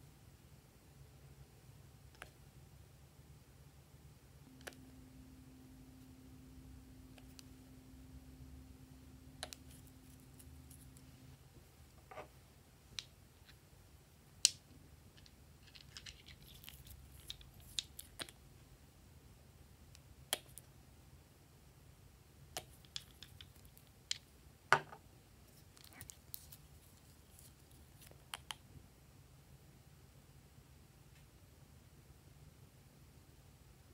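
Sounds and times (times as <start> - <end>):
faint steady hum: 0.0 - 33.9.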